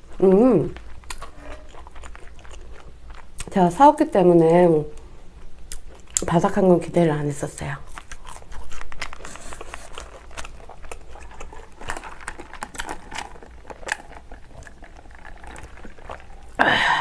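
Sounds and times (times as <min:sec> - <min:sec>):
close chewing with mouth clicks: 0:00.0 - 0:03.9, 0:05.0 - 0:06.6, 0:07.8 - 0:16.6
slurping through a straw: 0:09.1 - 0:16.6.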